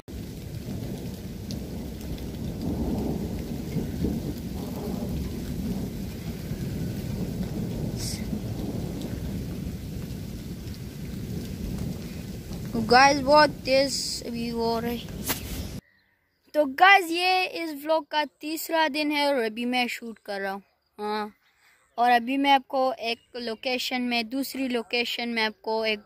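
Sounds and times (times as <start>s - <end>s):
steady rain: 0.0s - 15.8s
deep thunder rumble: 0.1s - 15.8s.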